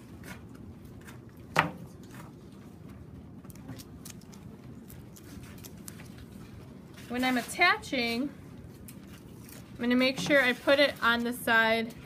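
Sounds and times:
low room hum: 0:00.0 - 0:12.0
masking tape being handled: 0:00.1 - 0:07.8, 0:08.6 - 0:11.3.

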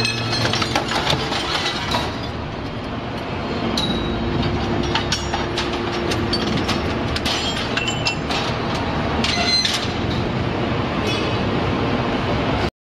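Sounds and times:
scrap metal clinking and grinding: 0:00.0 - 0:10.3
heavy mechanical din: 0:00.0 - 0:11.7
high metal squeals: 0:09.2 - 0:10.0.

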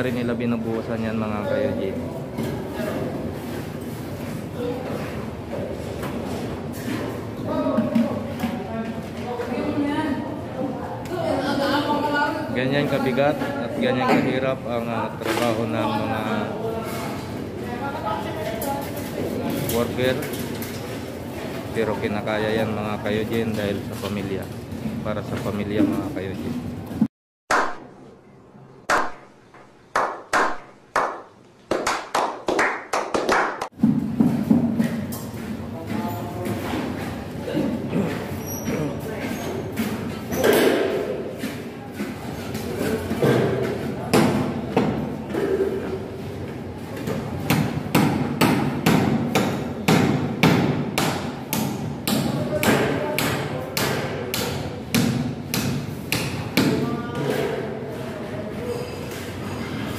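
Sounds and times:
sharp hand-clap-like strikes: 0:27.5 - 0:27.9, 0:28.9 - 0:33.8.

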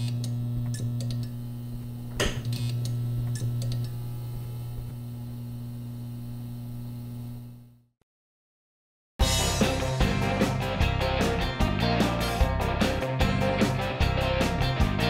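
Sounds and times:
electrical crackles and clicks: 0:00.0 - 0:07.5
neon sign mains hum: 0:00.0 - 0:07.8.

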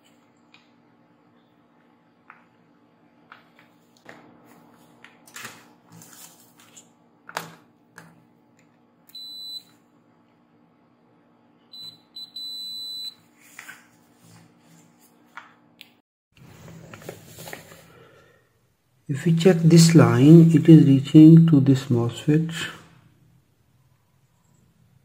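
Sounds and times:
multimeter continuity beeps: 0:09.1 - 0:09.7, 0:11.7 - 0:13.2.

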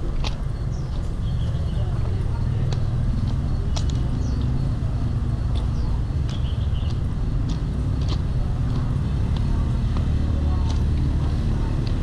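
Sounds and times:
distant traffic rumble: 0:00.0 - 0:12.0.

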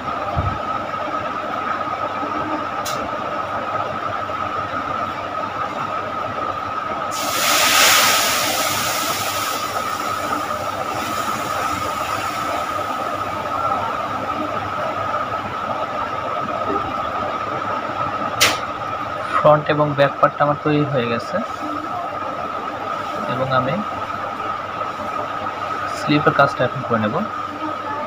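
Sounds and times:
loud rushing hiss: 0:07.1 - 0:13.6
steady background hiss: 0:07.1 - 0:15.2.

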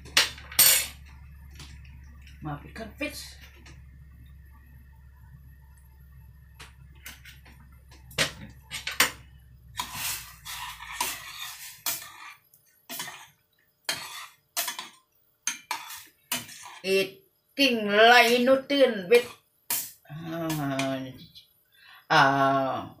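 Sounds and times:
metal spoon scraping saucepan: 0:00.5 - 0:01.0, 0:09.8 - 0:17.0.

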